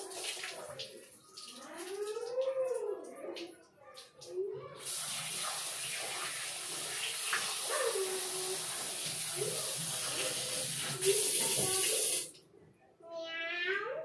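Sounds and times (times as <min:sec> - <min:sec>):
tap water running into a bowl: 0:04.8 - 0:12.4.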